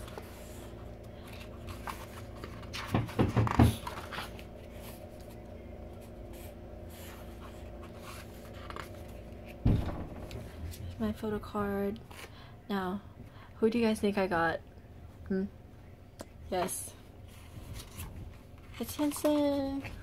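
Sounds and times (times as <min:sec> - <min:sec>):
book pages turning: 0:00.0 - 0:09.6, 0:17.6 - 0:18.2
steady low hum: 0:00.0 - 0:20.0
paper rustling: 0:01.2 - 0:05.4.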